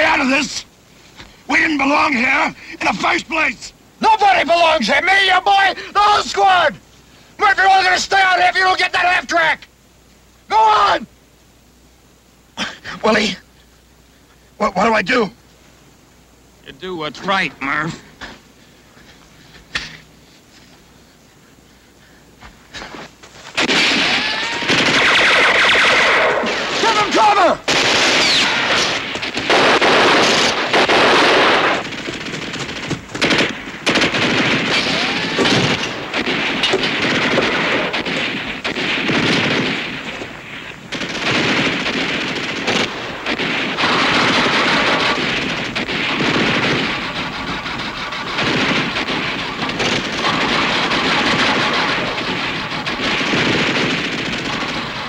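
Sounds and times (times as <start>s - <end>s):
machine-gun fire: 23.6s - 55.0s.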